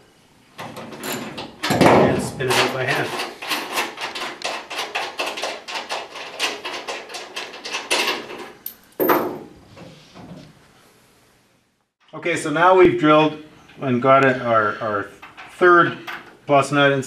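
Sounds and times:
small metallic clicks and clinks: 0:08.6 - 0:09.2
loud metal clink: 0:08.6 - 0:09.5.

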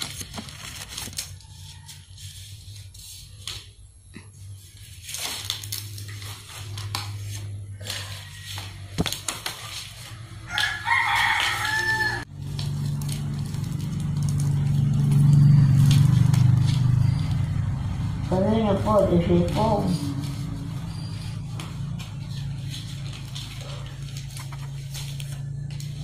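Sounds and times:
palm leaves rustling: 0:00.0 - 0:26.0
rooster crowing: 0:10.0 - 0:12.3.

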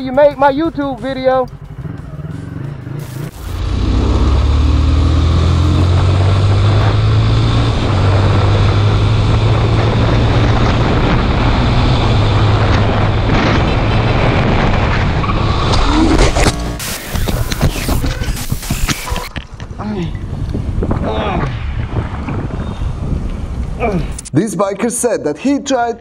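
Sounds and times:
wind and road noise: 0:00.0 - 0:24.5
motorcycle engine running: 0:01.5 - 0:14.7, 0:15.9 - 0:19.3
rising whine: 0:03.0 - 0:19.3.

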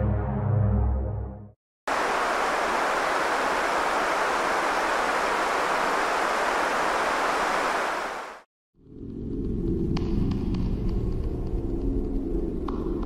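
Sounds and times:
steady rushing noise: 0:01.9 - 0:08.5.

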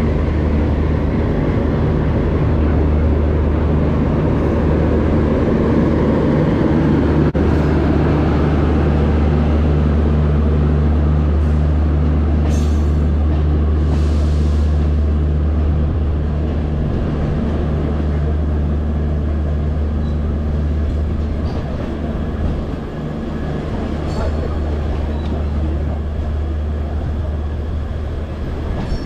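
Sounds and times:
train rolling on rails: 0:00.0 - 0:29.0.

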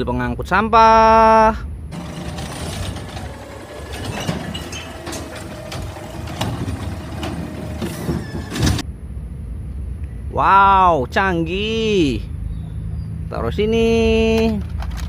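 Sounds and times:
low hum: 0:01.8 - 0:10.1
garbage truck running: 0:01.9 - 0:08.8
hydraulic arm lifting bin: 0:01.9 - 0:08.8
sharp metal clanks and knocks: 0:02.0 - 0:08.8.

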